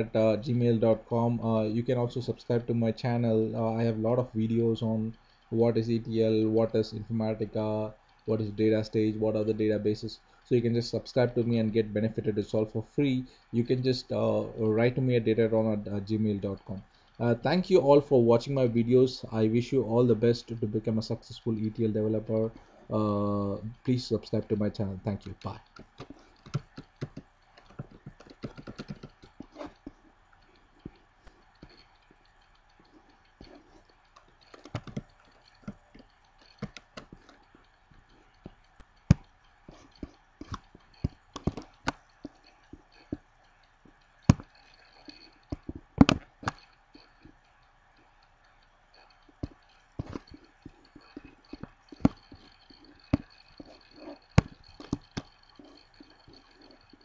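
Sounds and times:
faint steady hum: 0.0s - 57.0s
mouse and keyboard clicks: 25.4s - 43.3s, 44.0s - 47.4s, 49.0s - 57.0s.

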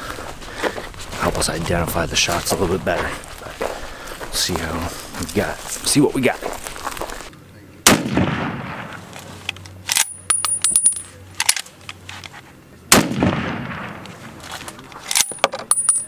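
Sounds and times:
rifle shots with echo: 7.8s - 9.1s, 12.9s - 14.1s.

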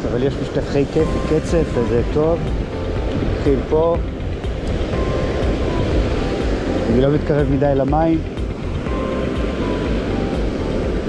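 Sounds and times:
sea surf washing onto beach: 0.0s - 11.0s
soft background music with beat: 0.0s - 11.0s
wind rumbling on microphone: 0.0s - 11.0s.

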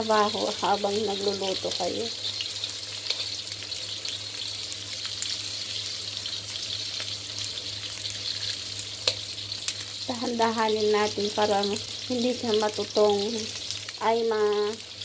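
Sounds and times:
fish frying in oil: 0.0s - 15.0s.

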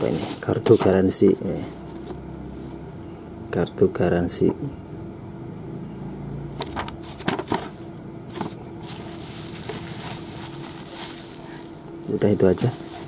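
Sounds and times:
bubble wrap crinkling: 8.3s - 13.0s.

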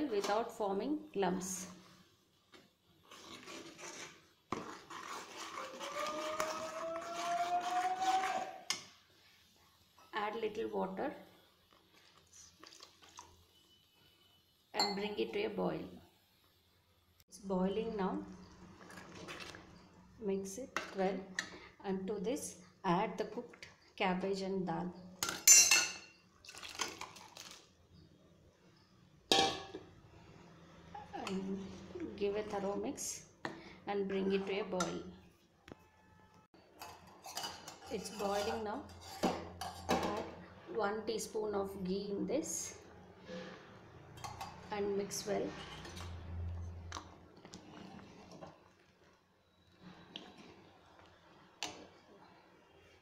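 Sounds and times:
steel spoon scraping a pan: 3.0s - 8.9s, 36.7s - 39.9s, 43.2s - 46.4s
ladle clinking on metal pot: 25.2s - 26.2s.

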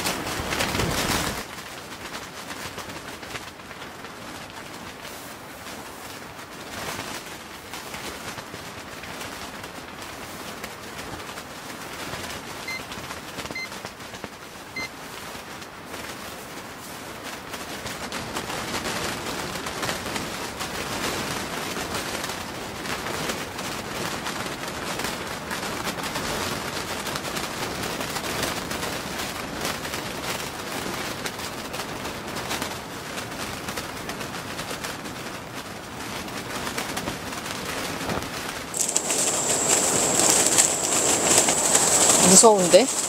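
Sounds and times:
tent fabric flapping and rattling: 0.0s - 43.0s
strong wind gusting: 38.7s - 43.0s.

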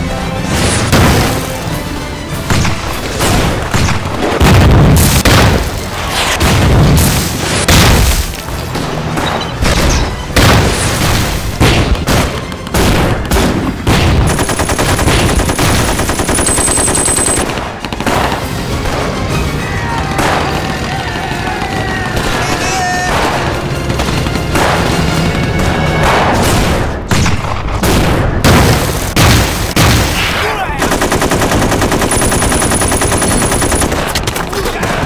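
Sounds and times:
dramatic music: 0.0s - 35.0s
rifle and machine-gun fire: 2.5s - 9.7s, 10.3s - 19.1s, 20.0s - 35.0s
explosions: 2.5s - 14.4s, 22.2s - 30.6s.

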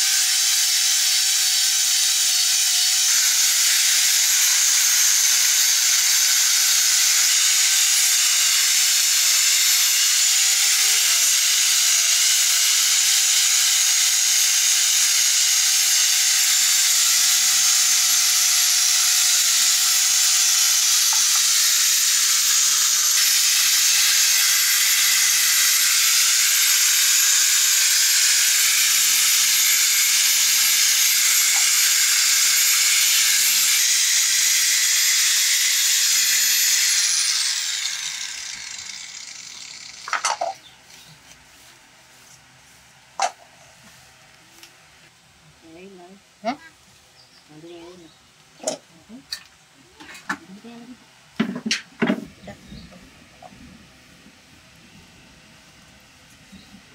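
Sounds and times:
grinder spinning down: 0.0s - 40.8s
angle grinder sanding: 0.0s - 44.8s.

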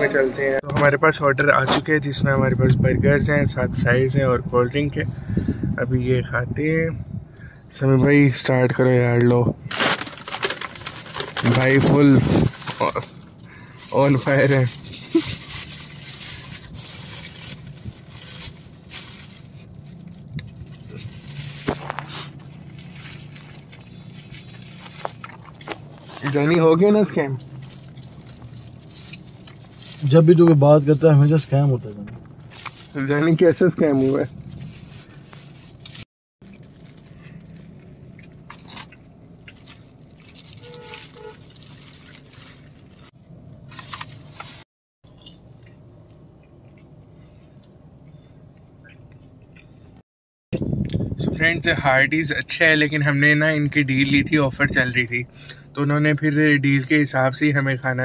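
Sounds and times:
paper wrapper crinkling: 9.7s - 26.6s, 27.5s - 44.6s.

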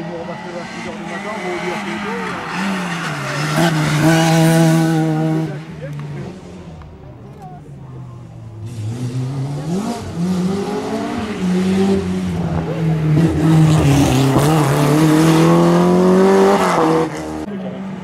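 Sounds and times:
rally car engine revving: 0.0s - 18.0s.

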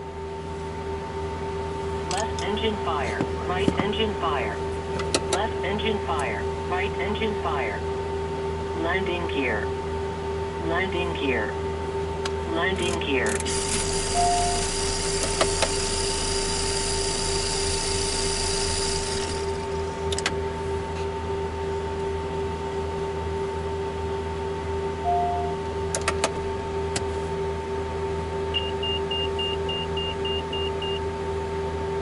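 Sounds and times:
electrical hum and whine: 0.0s - 32.0s
high beeps: 14.1s - 14.7s, 25.0s - 25.6s
short tone: 14.1s - 14.8s, 25.0s - 25.6s.

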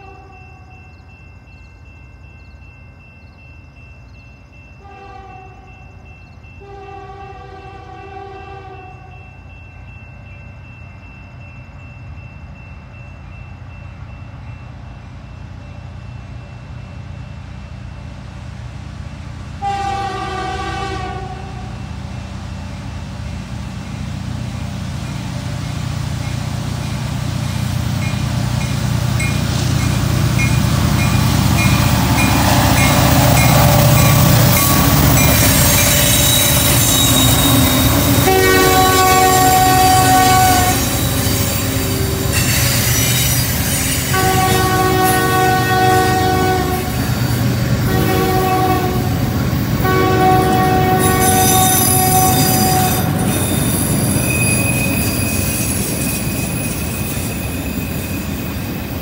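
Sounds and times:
freight train passing: 0.0s - 59.0s
train horn blasts: 4.8s - 5.8s, 6.6s - 9.2s, 19.6s - 21.9s, 32.0s - 42.6s, 44.0s - 47.0s, 47.8s - 53.7s.

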